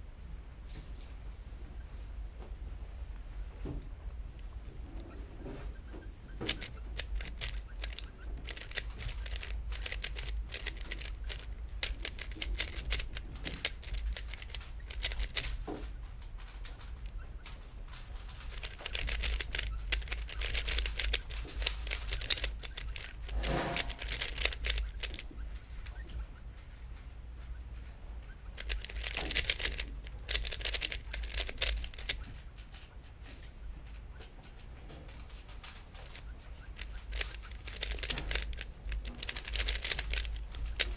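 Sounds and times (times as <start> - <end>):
puzzle cube clicking: 6.3 - 15.7, 18.1 - 26.0, 28.4 - 32.3, 36.0 - 40.9.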